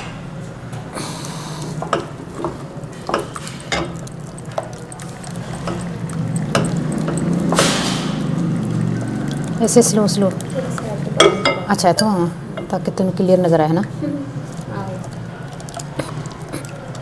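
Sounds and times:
liquid pouring: 1.5s - 11.4s, 14.3s - 17.0s
spatula knocking pot: 1.8s - 8.3s
spatula stirring thick batter: 2.3s - 7.6s.

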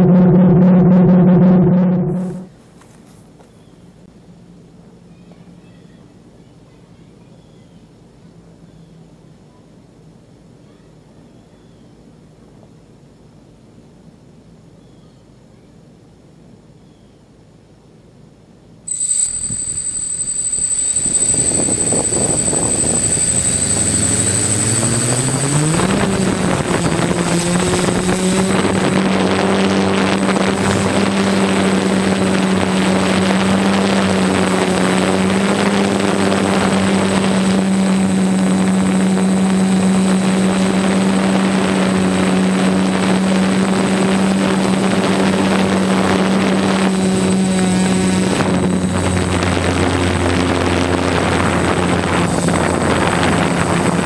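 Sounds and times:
drone motors buzzing: 18.9s - 54.0s.

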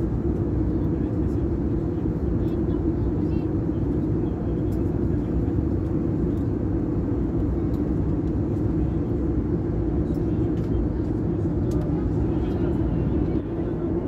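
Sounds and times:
airplane cabin engine drone: 0.0s - 14.0s.

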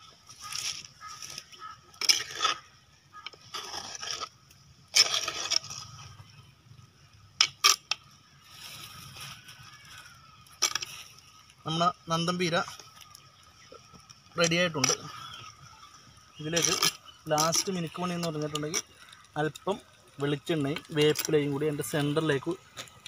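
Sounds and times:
metal spoon scraping a clay pot: 0.4s - 6.4s, 7.4s - 8.1s, 10.5s - 11.0s, 16.3s - 19.6s, 20.3s - 22.0s.

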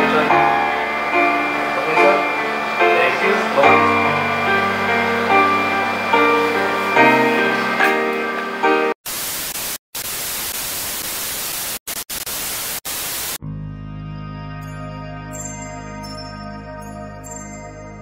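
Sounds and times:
calm outro music: 0.0s - 9.0s
music: 0.0s - 9.0s, 13.4s - 18.0s
tv static hiss: 0.0s - 13.4s.

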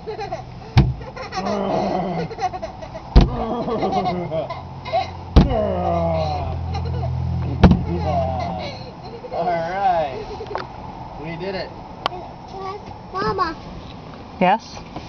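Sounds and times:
squeegee knocking on windshield: 0.8s - 1.0s, 3.2s - 3.4s, 5.4s - 5.6s, 7.6s - 7.9s.

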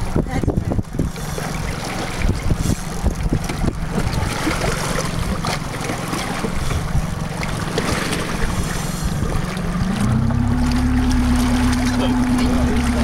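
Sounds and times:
wind noise on microphone: 0.0s - 4.6s
boat engine idling: 0.0s - 13.0s.

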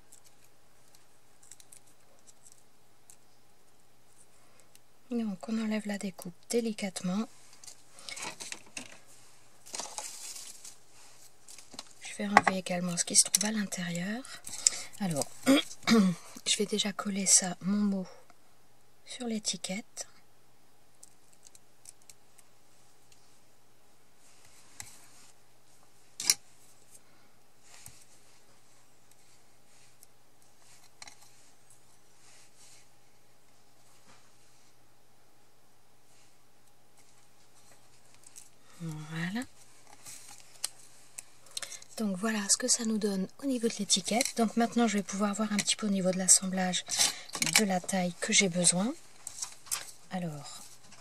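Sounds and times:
soft paper rustle: 0.0s - 4.8s, 7.2s - 15.8s, 24.2s - 34.8s, 36.1s - 51.0s.

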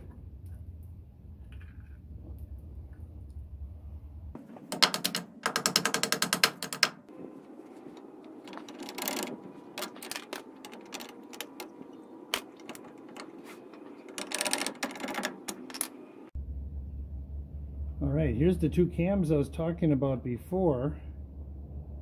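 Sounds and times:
metal clicks and knocks: 4.4s - 7.1s, 8.2s - 16.0s.

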